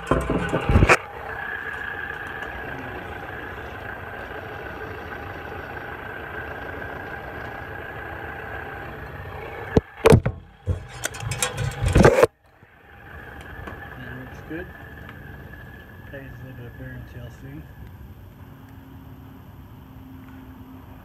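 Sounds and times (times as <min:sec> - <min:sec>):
loud knocks and clatter: 0:00.0 - 0:01.0, 0:10.0 - 0:12.3
ceiling fan motor humming: 0:00.0 - 0:12.3.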